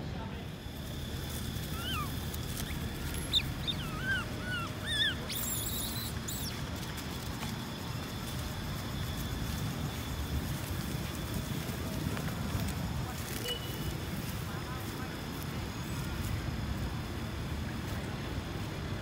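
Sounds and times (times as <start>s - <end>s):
low background rumble: 0.0s - 13.2s
baby monkey squeaking: 1.4s - 6.6s.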